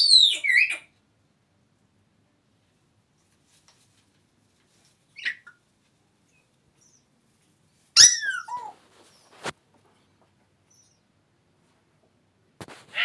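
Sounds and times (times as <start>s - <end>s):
parrot chirp: 0.0s - 0.9s, 5.2s - 5.6s, 8.0s - 8.8s.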